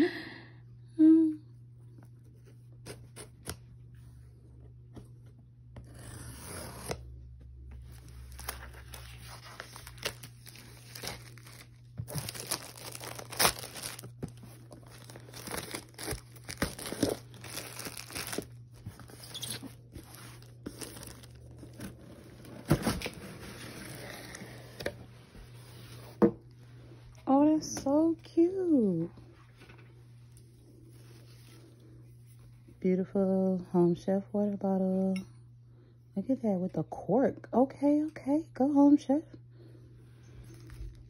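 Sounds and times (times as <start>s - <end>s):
cardboard crinkling and rustling: 7.8s - 26.2s
packing tape slicing and tearing: 8.3s - 21.9s.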